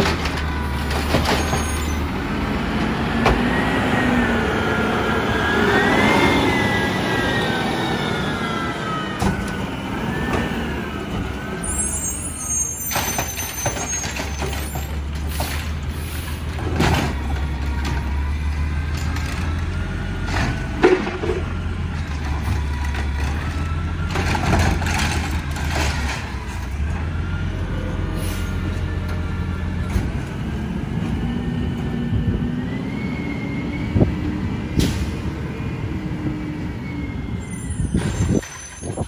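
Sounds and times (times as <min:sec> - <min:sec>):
bangs of cart and falling trash: 0:00.0 - 0:02.0, 0:12.8 - 0:15.8, 0:16.6 - 0:18.2, 0:20.2 - 0:23.4, 0:24.0 - 0:26.7
air brake hiss: 0:28.2 - 0:28.6.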